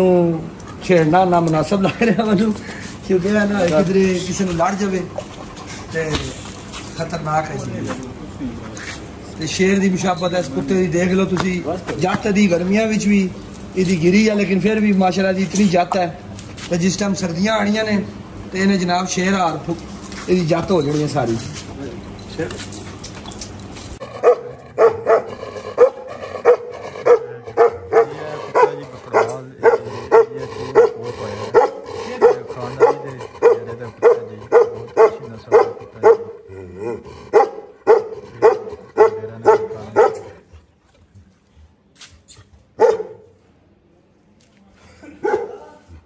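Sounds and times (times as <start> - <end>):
dog barking: 24.2 - 36.4, 37.3 - 40.4, 42.8 - 43.4, 45.2 - 45.8.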